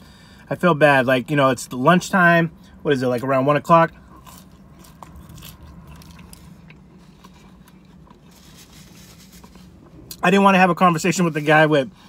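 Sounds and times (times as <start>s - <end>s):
low hum in car cabin: 0.0s - 12.0s
chewing fried food: 3.9s - 10.2s.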